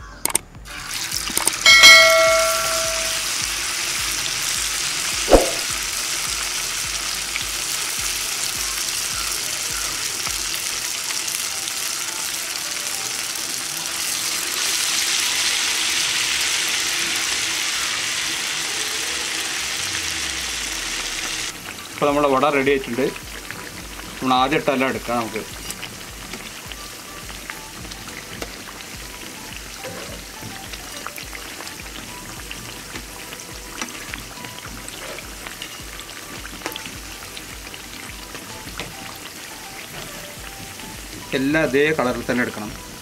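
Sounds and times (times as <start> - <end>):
food sizzling in hot oil: 0.6 - 43.0
short bell chime: 1.7 - 3.3
sharp knock: 5.3 - 5.7.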